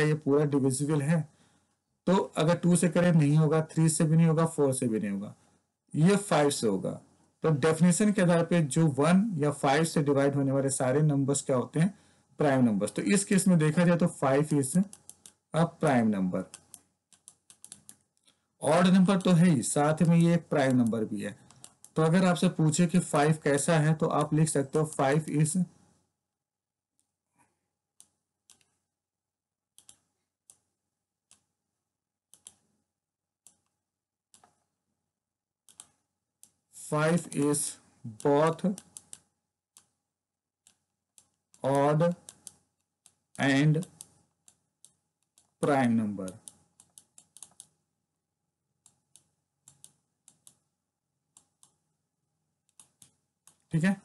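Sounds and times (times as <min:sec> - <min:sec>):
light clicks on a whiteboard: 0:38.2 - 0:40.0.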